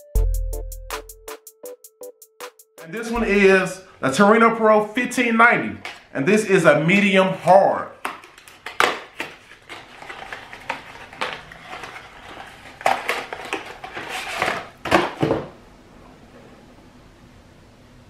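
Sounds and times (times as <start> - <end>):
cardboard box being handled: 9.4 - 14.7.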